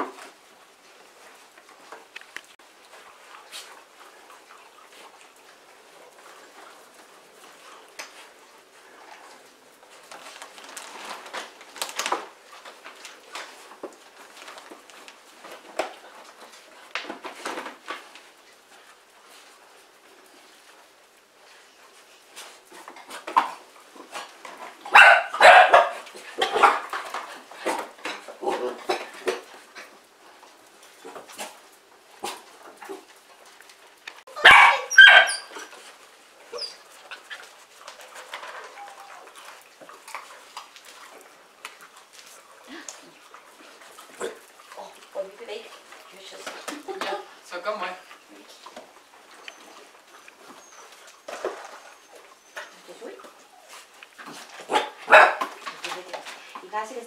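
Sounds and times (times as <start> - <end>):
puppies scuffling: 0.0 - 57.0
puppy barking: 24.9 - 26.8, 34.3 - 35.6, 54.7 - 55.5.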